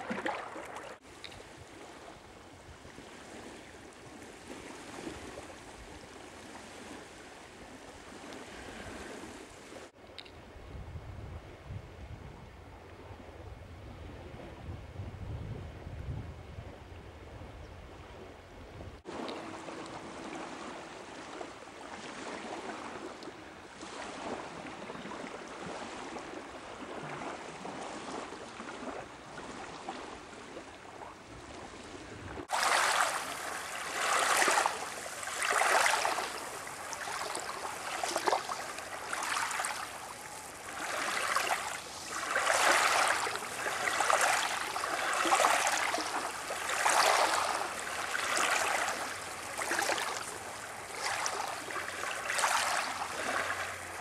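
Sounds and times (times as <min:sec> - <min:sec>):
waves washing over gravel: 0:32.4 - 0:54.0.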